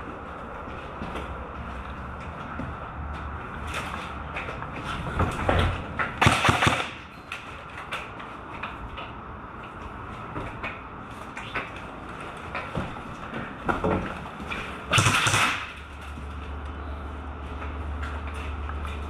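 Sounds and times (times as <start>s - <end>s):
loud sharp clacks: 14.9s - 15.9s.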